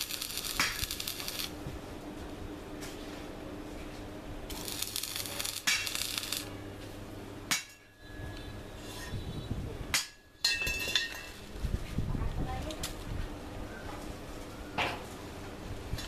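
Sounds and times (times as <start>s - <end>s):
welding arc crackling and hissing: 0.0s - 1.6s, 4.4s - 6.6s.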